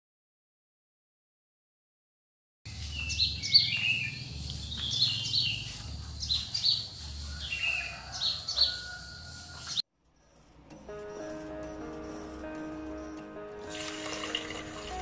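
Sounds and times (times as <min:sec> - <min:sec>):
small birds chirping: 0:02.7 - 0:13.4.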